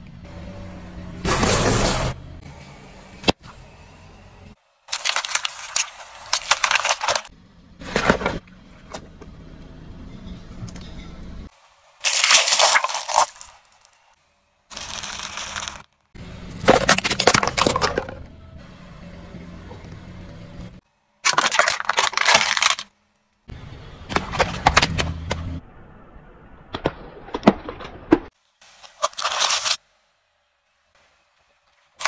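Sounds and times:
tyre crushing objects: 0:12.0 - 0:13.8, 0:14.7 - 0:15.8, 0:16.5 - 0:18.2.

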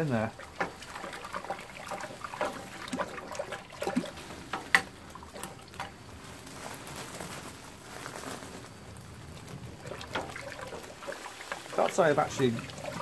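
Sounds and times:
grain pouring into water: 0:00.0 - 0:06.2, 0:08.4 - 0:13.0
plastic bag crinkling: 0:04.2 - 0:12.6.

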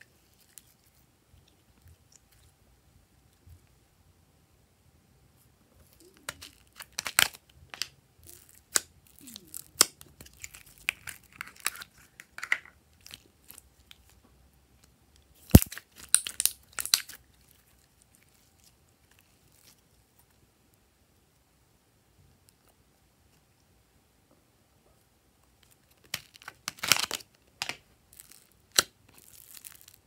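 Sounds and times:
slime squeezed crackling: 0:05.8 - 0:07.4, 0:08.2 - 0:12.2, 0:28.1 - 0:30.0
slime snapping: 0:15.5 - 0:17.2.

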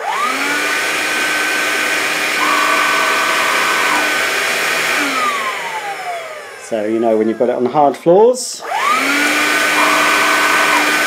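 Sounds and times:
vacuum cleaner motor whining: 0:00.0 - 0:11.0
lower whine: 0:02.2 - 0:07.8, 0:09.7 - 0:11.0.

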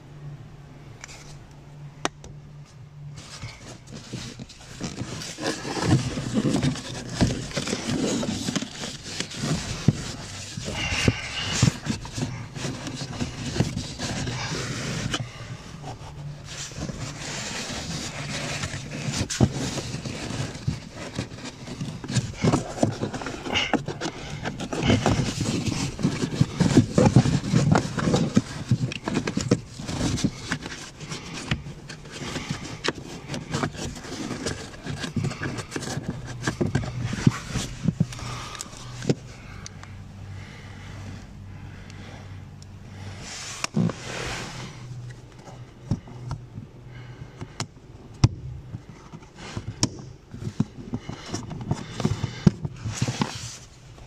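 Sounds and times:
filter scraping in plastic housing: 0:03.2 - 0:39.3.

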